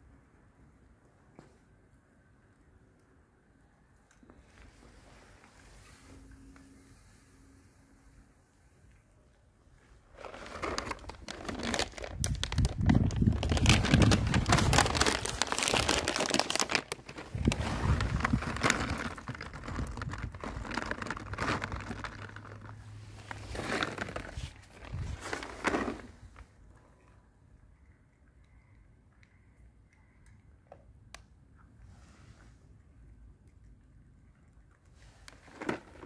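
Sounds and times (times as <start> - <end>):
crinkling and rustling: 9.7 - 26.8, 34.9 - 36.0.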